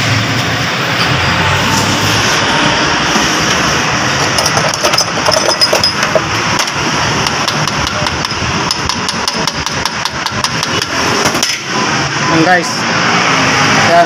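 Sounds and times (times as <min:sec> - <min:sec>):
loud steady background noise: 0:00.0 - 0:14.0
hammer tapping on steel punch: 0:04.9 - 0:11.0.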